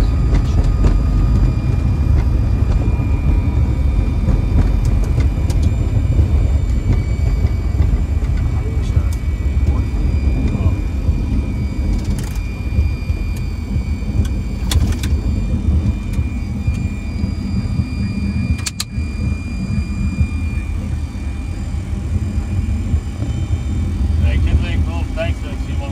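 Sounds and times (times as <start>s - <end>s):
airliner rumble on runway: 0.0s - 25.9s
faint high whine: 0.0s - 25.9s
sharp clicks: 18.6s - 18.9s.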